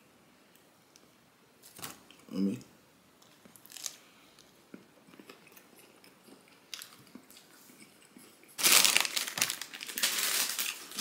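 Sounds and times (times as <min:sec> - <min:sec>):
person chewing food: 0:03.6 - 0:08.6.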